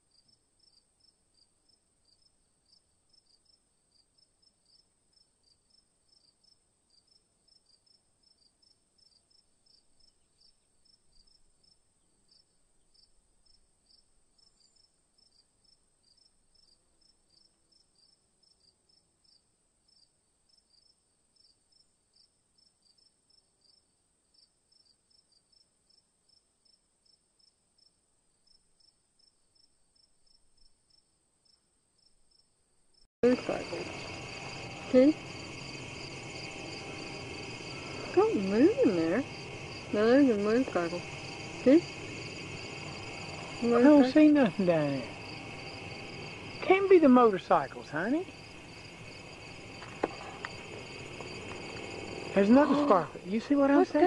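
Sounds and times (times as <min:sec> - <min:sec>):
crickets chirping: 0:00.0 - 0:54.0
faint high hiss: 0:33.2 - 0:54.0.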